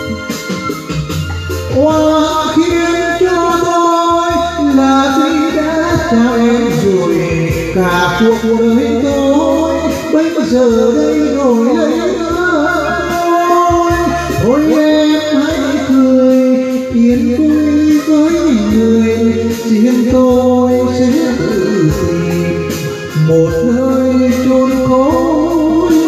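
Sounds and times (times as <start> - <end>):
backing track with bass line: 0.0 - 26.0
man singing into a microphone: 1.5 - 26.0.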